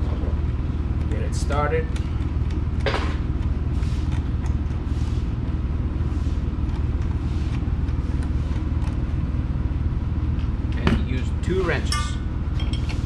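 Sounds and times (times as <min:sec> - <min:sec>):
workshop background rumble: 0:00.0 - 0:13.0.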